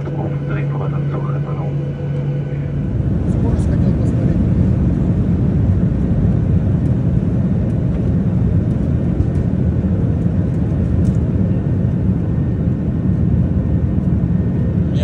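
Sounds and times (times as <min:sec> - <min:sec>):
airliner cabin engine rumble: 0:00.0 - 0:15.0.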